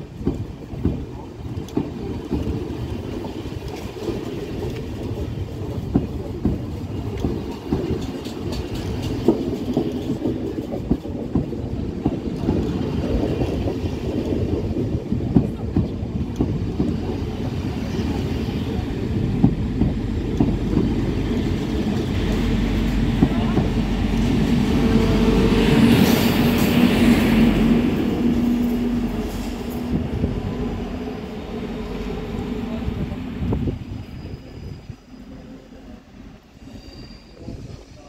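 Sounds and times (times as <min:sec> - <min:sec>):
wheels clicking over rail joints: 0:00.0 - 0:24.9
train wheels rumbling on rails: 0:00.0 - 0:38.0.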